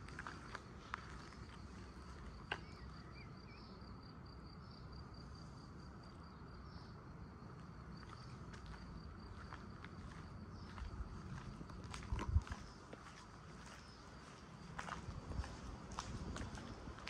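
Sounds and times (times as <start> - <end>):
cricket trilling: 0.0 - 17.0.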